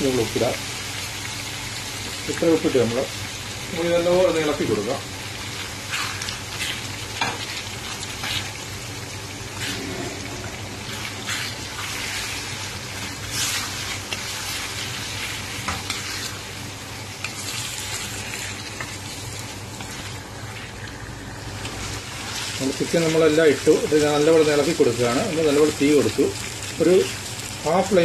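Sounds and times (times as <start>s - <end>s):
chicken sizzling in hot oil: 0.0s - 28.0s
wooden spatula scraping pan: 9.6s - 12.4s.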